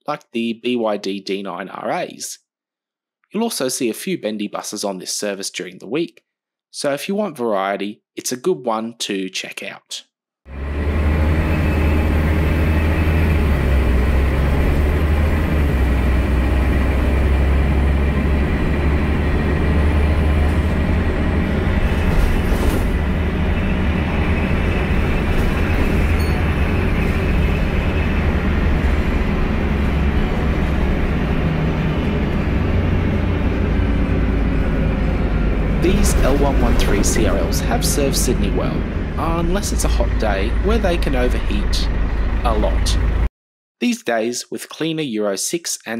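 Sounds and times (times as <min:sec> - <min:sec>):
bus diesel engine droning: 0:10.5 - 0:43.3.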